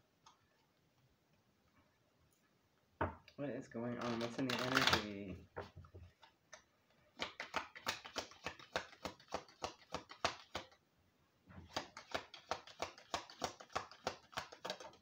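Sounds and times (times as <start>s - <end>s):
cards being shuffled: 3.9s - 5.4s, 7.2s - 10.8s, 11.6s - 15.0s.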